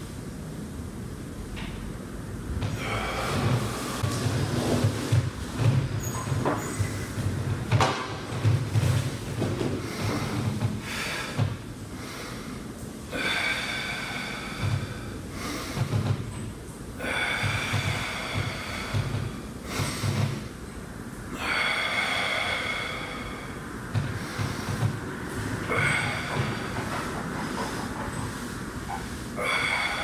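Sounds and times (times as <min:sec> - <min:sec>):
man breathing forcefully: 0:02.6 - 0:06.0, 0:06.6 - 0:16.3, 0:16.9 - 0:20.6, 0:21.3 - 0:30.0.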